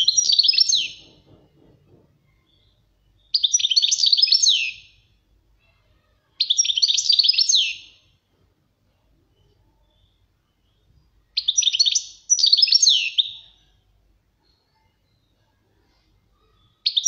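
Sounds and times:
finch twittering song: 0.0s - 1.2s, 2.3s - 5.2s, 6.4s - 8.2s, 9.2s - 13.8s, 16.5s - 17.0s.

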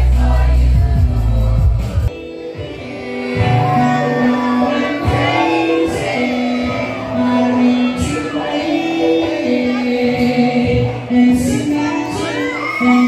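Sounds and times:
heavy bass: 0.0s - 2.1s
live concert music: 0.0s - 13.0s.

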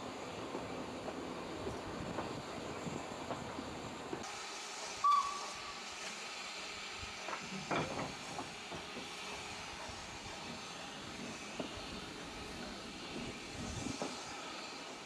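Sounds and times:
steam hissing: 0.0s - 15.0s
short sharp whistle: 5.0s - 5.7s.

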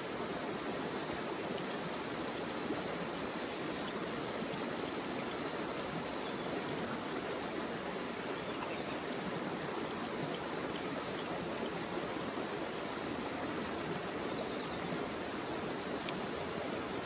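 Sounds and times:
river rushing: 0.0s - 17.0s
faint clicks: 9.8s - 11.8s, 16.0s - 16.4s.

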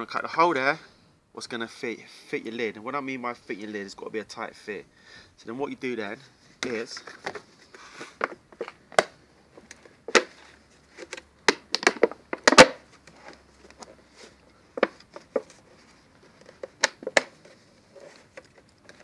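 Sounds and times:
plastic clicking and creaking: 16.2s - 19.0s.

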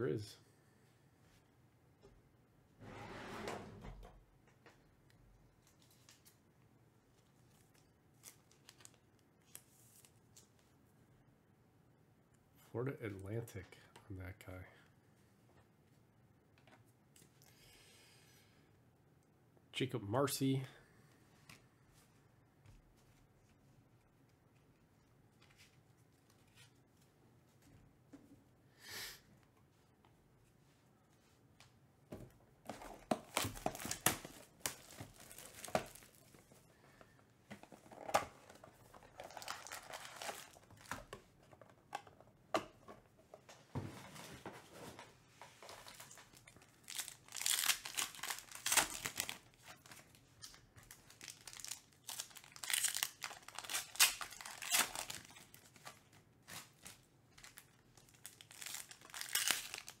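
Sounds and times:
foil packs crinkling and tearing: 33.2s - 36.4s, 39.0s - 40.9s, 45.8s - 55.8s, 56.5s - 60.0s.

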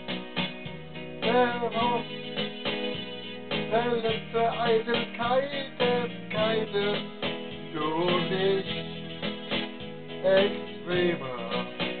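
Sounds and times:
electronic keyboard melody with beat: 0.0s - 12.0s
man singing: 1.2s - 2.3s, 3.6s - 9.1s, 10.1s - 12.0s.

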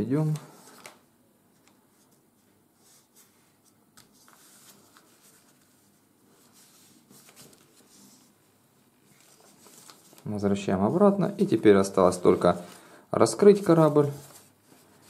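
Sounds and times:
paper rustling and scraping: 1.6s - 8.4s, 9.0s - 10.5s, 11.4s - 15.0s.

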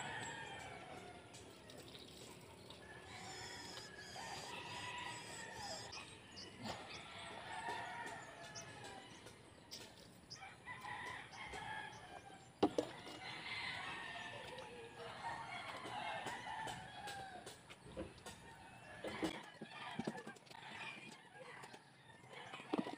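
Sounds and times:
roosters crowing: 0.0s - 1.4s, 2.8s - 9.5s, 10.3s - 22.9s.

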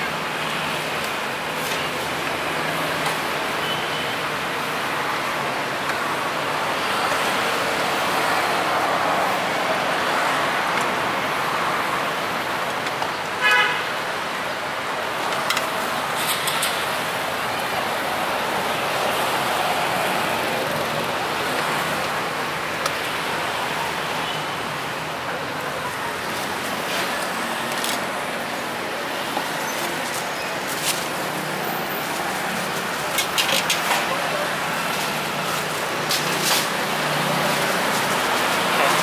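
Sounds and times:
street traffic noise: 0.0s - 39.0s
vehicle horn toot: 13.4s - 13.8s.

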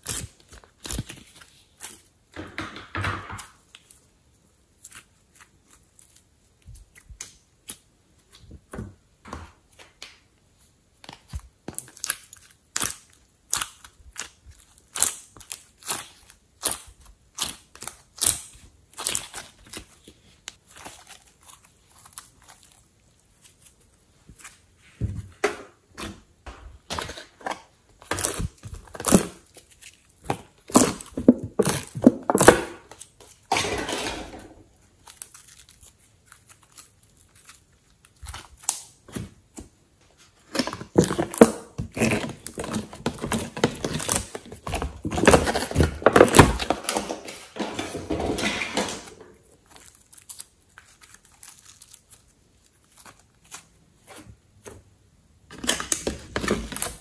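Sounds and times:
slime crackling and popping: 0.0s - 2.1s, 11.2s - 24.6s, 28.0s - 33.6s, 34.9s - 39.6s.

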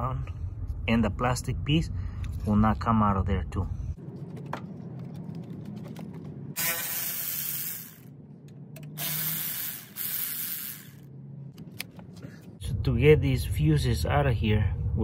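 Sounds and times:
power ratchet spinning: 6.6s - 8.1s, 9.0s - 11.1s.

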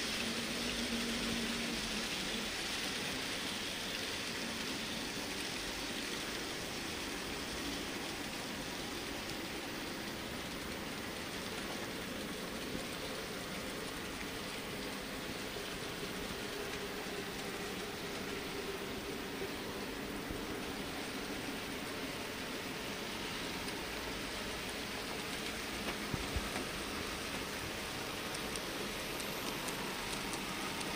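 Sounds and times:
faint hum: 0.0s - 30.9s.

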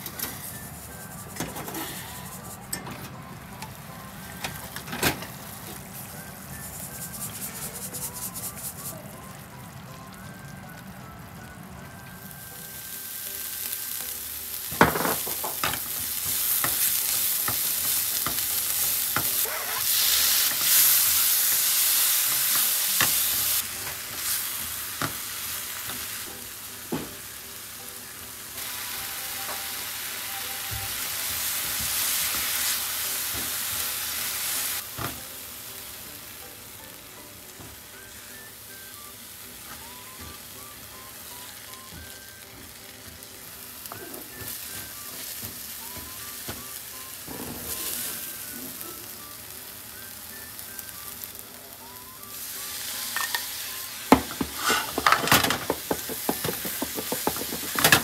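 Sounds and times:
food sizzling in pan: 0.0s - 2.6s, 4.0s - 9.9s, 12.2s - 58.0s
utensil knocking against pan: 54.2s - 58.0s.

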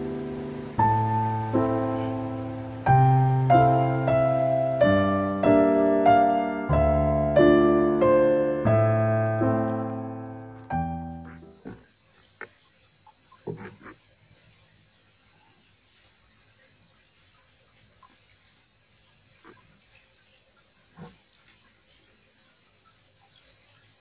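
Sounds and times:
insect droning: 0.0s - 24.0s
faint knocks: 11.4s - 12.6s, 13.4s - 14.0s.

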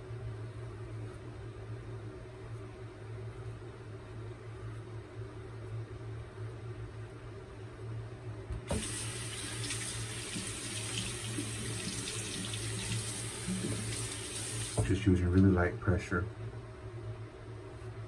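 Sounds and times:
tap water running into basin: 8.7s - 14.9s.

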